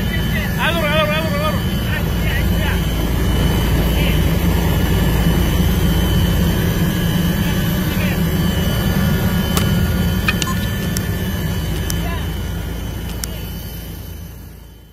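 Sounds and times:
helicopter engine rumble: 0.0 - 14.9
thin steady whine: 0.0 - 14.9
sharp clicks: 9.5 - 12.0.

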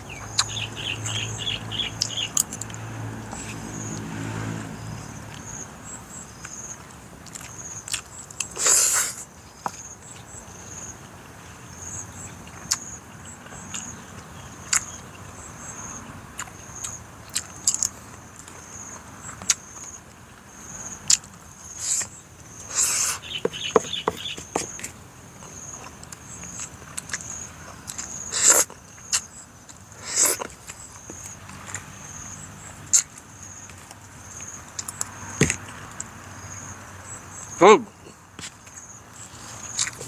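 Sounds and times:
high repeating chirping: 22.8 - 24.7
spoon tapping plate: 23.4 - 24.7
eating mouth sounds: 27.9 - 29.3.

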